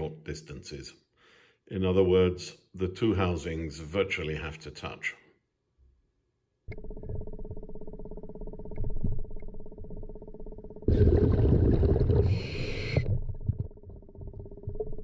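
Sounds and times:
underwater mechanical hum: 6.7 - 15.0
diver breathing bubbles: 10.9 - 15.0.

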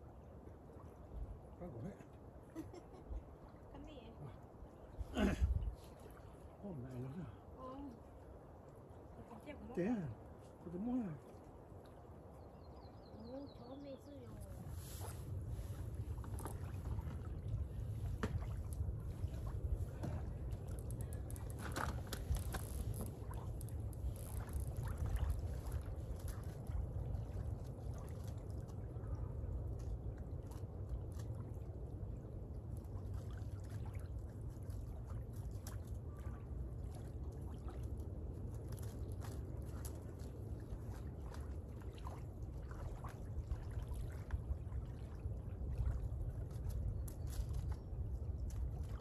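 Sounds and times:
small waves lapping: 0.0 - 49.0
wind buffeting microphone: 13.2 - 35.3.

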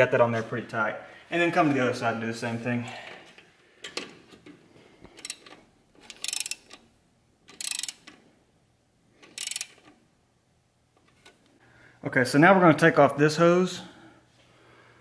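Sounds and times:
socket ratchet clicking: 5.2 - 6.8, 7.5 - 8.2, 9.2 - 9.9.

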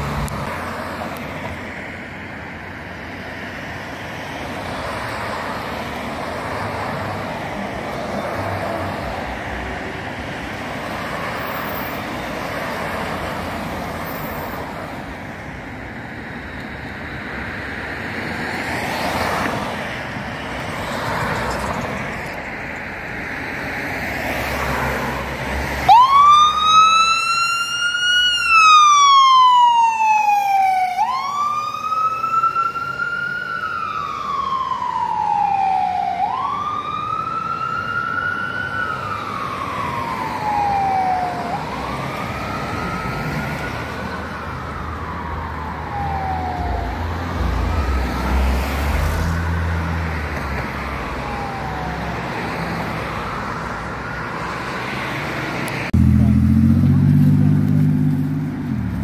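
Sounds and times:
wailing emergency siren: 23.1 - 55.1.

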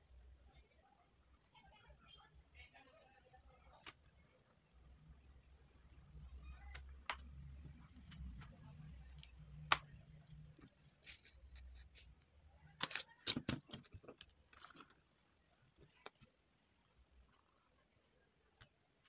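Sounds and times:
steady high-pitched hiss: 0.0 - 12.7, 13.5 - 19.0
paper rustling: 10.6 - 12.1.

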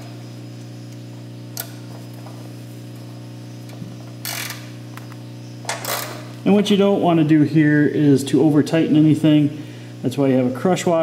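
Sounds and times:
steady low hum: 0.0 - 11.0
socket ratchet clicking: 4.2 - 4.7.

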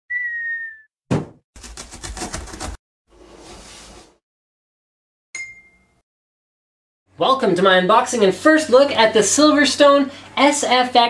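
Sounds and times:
falling whistle tone: 0.1 - 0.9
sharp thump: 1.1 - 1.4
bright ding: 5.4 - 6.0.

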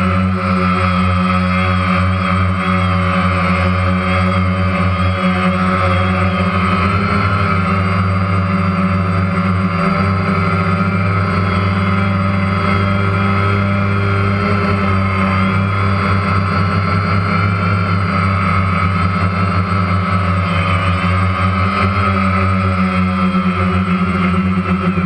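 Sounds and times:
drone motors humming and whining: 0.0 - 25.0.

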